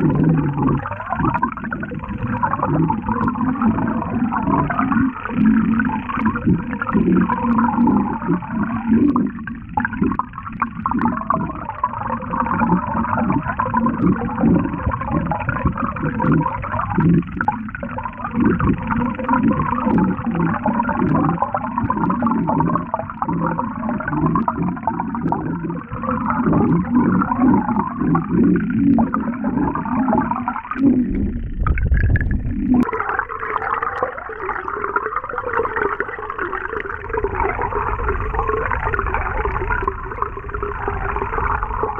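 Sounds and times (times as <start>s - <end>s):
underwater rattling buzz: 0.0s - 41.9s
low rumble: 24.4s - 32.9s.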